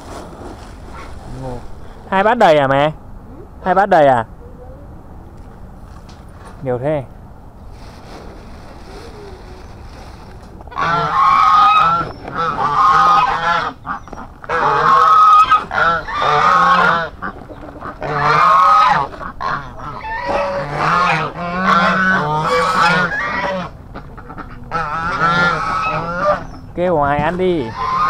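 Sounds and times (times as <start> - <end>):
waterfowl calling loudly: 10.7 - 28.0.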